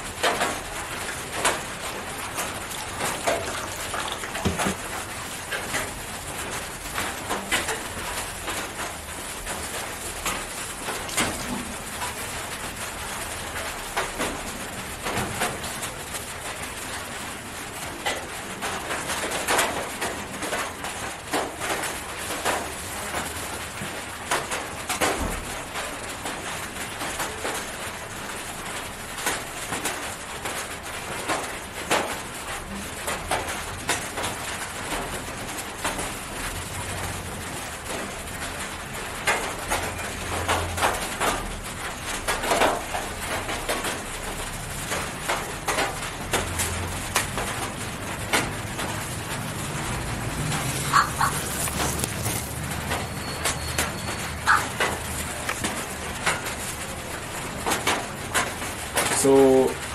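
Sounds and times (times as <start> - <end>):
plastic gloves crinkling: 49.9 - 53.1, 54.6 - 56.9.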